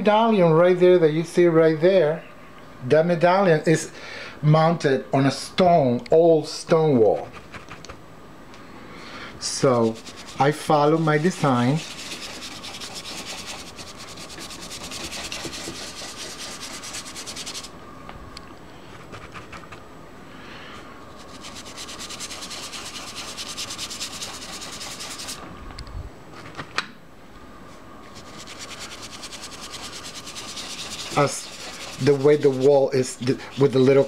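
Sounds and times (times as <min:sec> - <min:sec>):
paintbrush scrubbing surface: 0:09.6 - 0:17.7, 0:21.1 - 0:25.4, 0:28.1 - 0:34.0.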